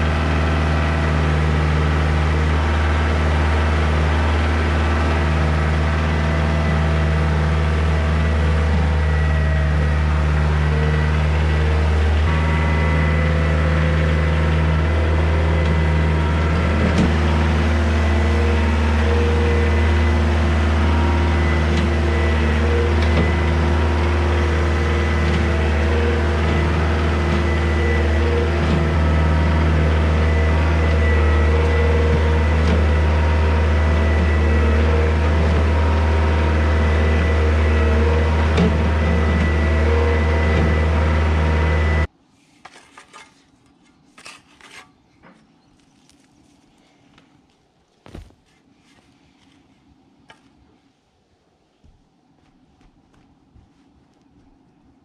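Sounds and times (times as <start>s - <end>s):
diesel tractor engine running: 0.0s - 42.1s
shovel scraping soil: 42.3s - 45.1s.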